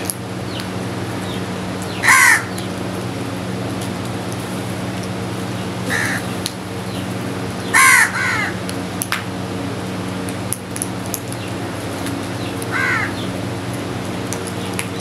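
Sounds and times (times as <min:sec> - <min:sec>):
crows cawing: 0:02.0 - 0:02.7, 0:05.8 - 0:06.4, 0:07.7 - 0:08.6, 0:12.6 - 0:13.3.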